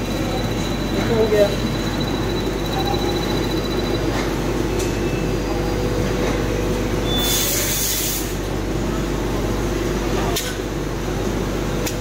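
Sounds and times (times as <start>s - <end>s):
machine hum: 0.0s - 7.0s.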